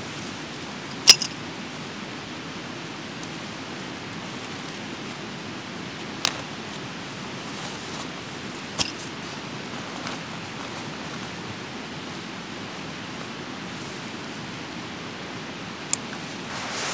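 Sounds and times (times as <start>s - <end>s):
light rain hiss: 0.0s - 16.9s
river flowing: 0.0s - 16.9s.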